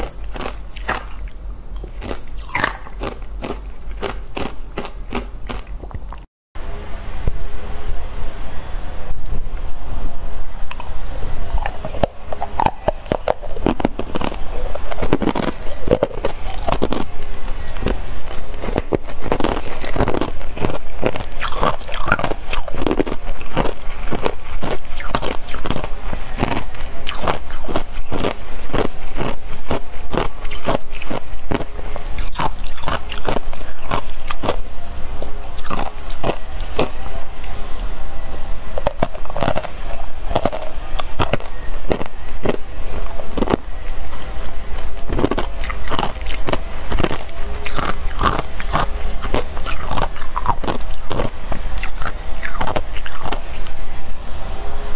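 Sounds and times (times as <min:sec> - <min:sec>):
steady low rumble: 0:00.0 - 0:54.9
ice cubes crunching: 0:17.8 - 0:34.6, 0:45.2 - 0:53.4.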